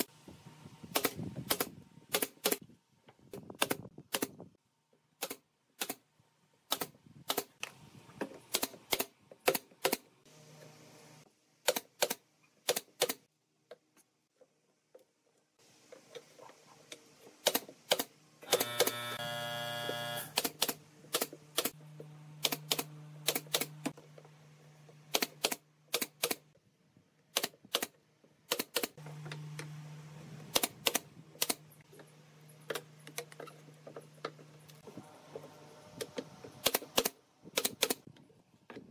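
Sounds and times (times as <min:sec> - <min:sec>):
pneumatic nailer firing: 0:00.8 - 0:02.6, 0:08.5 - 0:10.1, 0:17.4 - 0:21.8, 0:22.4 - 0:24.0, 0:25.1 - 0:26.4, 0:30.5 - 0:31.6, 0:36.6 - 0:38.0.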